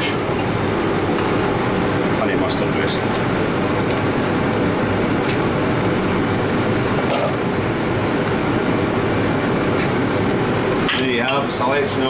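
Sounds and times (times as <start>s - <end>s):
kitchen ventilation roar: 0.0s - 12.0s.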